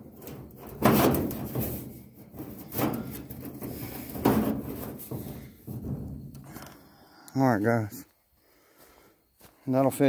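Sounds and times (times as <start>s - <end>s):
metal scraping on metal: 0.0s - 6.8s.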